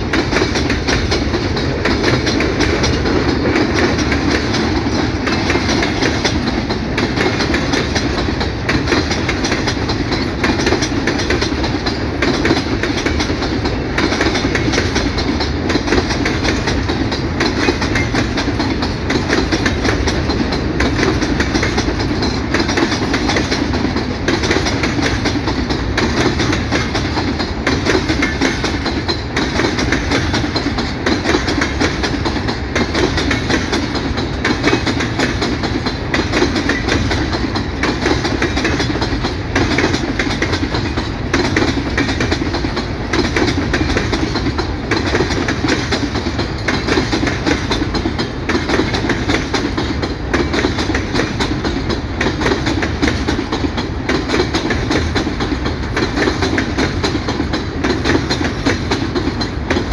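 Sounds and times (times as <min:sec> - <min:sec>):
freight wagons rumbling and rattling: 0:00.0 - 0:59.9
wheels clacking over rail joints: 0:00.0 - 0:59.9.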